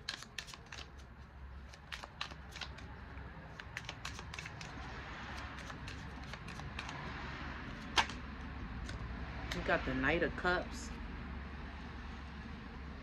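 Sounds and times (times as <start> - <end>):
cards being shuffled: 0.0 - 9.0
card snap: 7.9 - 8.2.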